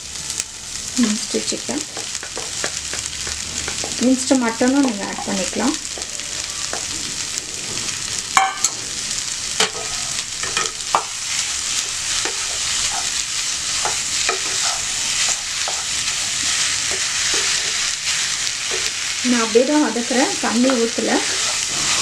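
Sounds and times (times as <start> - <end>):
food sizzling in a pan: 0.0 - 22.0
spatula scraping and knocking pan: 1.8 - 6.1, 9.6 - 19.2, 19.8 - 22.0.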